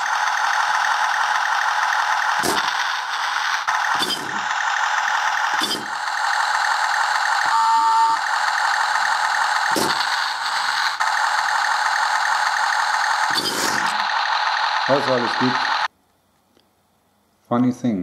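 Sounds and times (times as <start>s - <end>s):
small gear motors whirring: 1.1s - 6.3s
brief tone: 7.5s - 8.2s.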